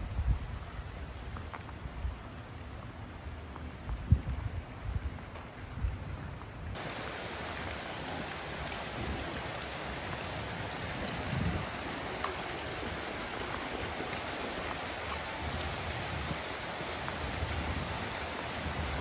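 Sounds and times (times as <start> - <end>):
river water rushing: 6.8 - 19.0.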